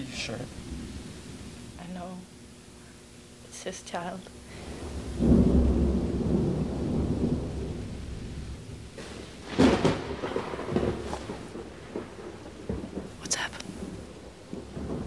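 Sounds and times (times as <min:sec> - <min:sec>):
thunder crack: 0:00.0 - 0:02.0, 0:04.4 - 0:15.0
thunder rumbling: 0:00.0 - 0:15.0.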